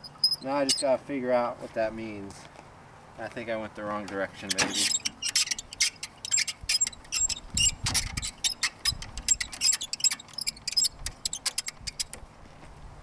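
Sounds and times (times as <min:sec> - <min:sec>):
crank clicking: 0:04.5 - 0:12.2.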